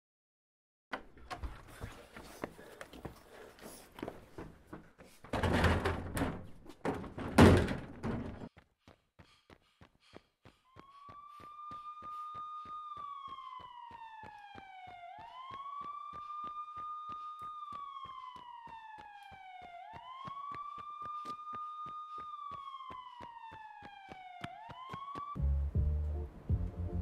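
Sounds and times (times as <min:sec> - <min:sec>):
emergency siren wailing: 0:10.7 - 0:25.5
low-pitched music: 0:25.4 - 0:27.0.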